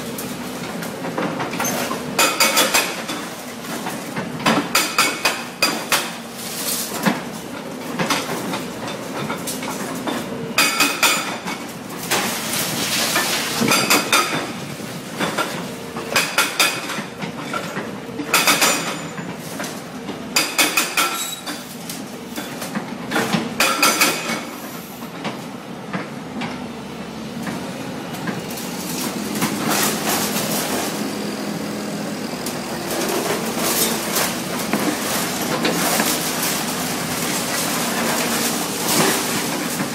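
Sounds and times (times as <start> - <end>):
hydraulic breaker hammering concrete: 4.2 - 6.2
excavator engine running: 22.0 - 39.9.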